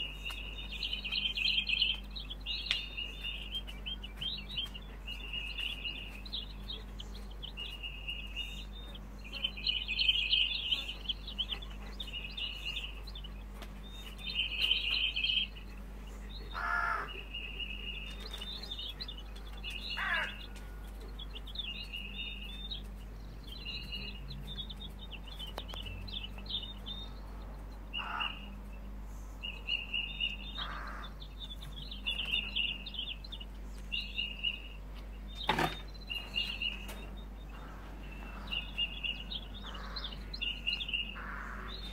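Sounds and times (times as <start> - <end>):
birds chirping: 0.0 - 41.9
harsh bird calls: 0.0 - 41.9.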